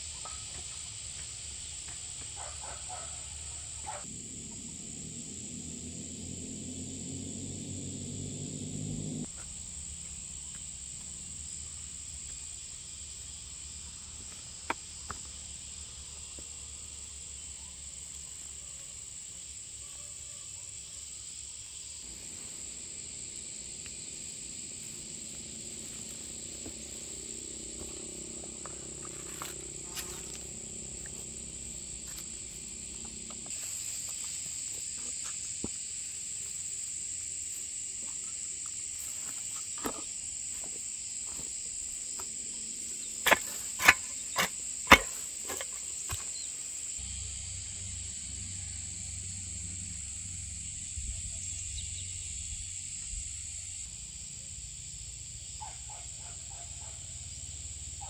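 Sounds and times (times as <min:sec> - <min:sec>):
insects chirring: 0:00.0 - 0:58.0
low hum: 0:04.1 - 0:09.3, 0:22.1 - 0:33.5.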